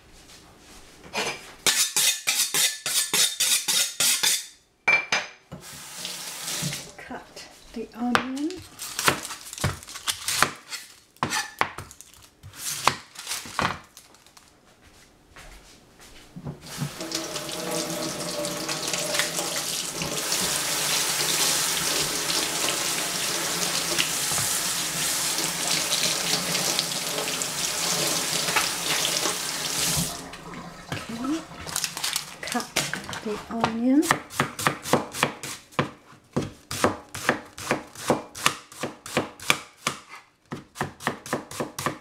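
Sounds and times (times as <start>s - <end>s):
tap water running into sink: 5.6s - 6.9s, 16.6s - 33.0s.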